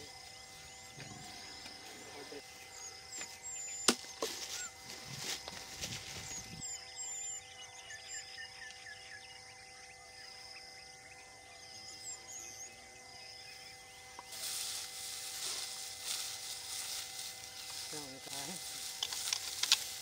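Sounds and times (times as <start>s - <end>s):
faint steady hum: 0.0s - 20.0s
small birds chirping: 0.0s - 20.0s
rustling hiss: 14.2s - 20.0s.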